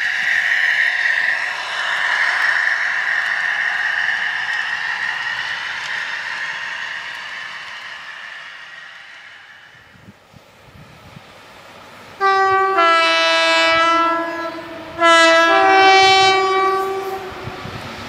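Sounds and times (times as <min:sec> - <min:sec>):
faint train rumble: 0:00.0 - 0:18.0
two-tone locomotive air horn: 0:12.2 - 0:17.8.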